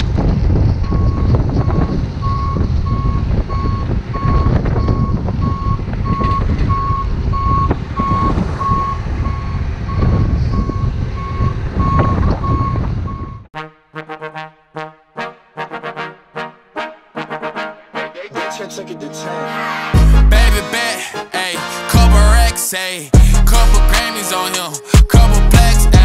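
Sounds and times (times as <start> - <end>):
diesel engine running: 0.0 - 13.4
reversing alarm beeping: 0.8 - 13.5.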